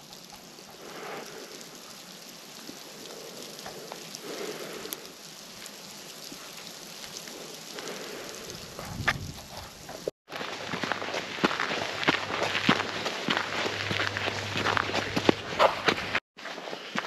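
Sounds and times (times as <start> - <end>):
small hail falling: 0.0 - 10.1.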